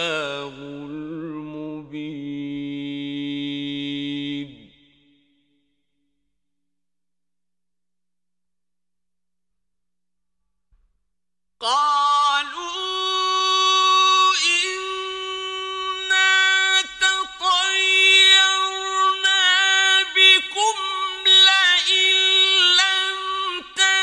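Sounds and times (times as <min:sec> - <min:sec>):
man reciting melodically: 0:00.0 - 0:04.8, 0:11.6 - 0:24.0.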